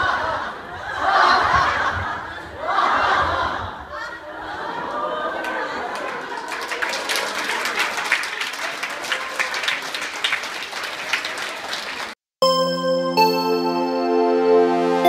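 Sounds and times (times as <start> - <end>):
crowd clapping: 5.4 - 12.2
synthesizer tune: 12.4 - 15.0.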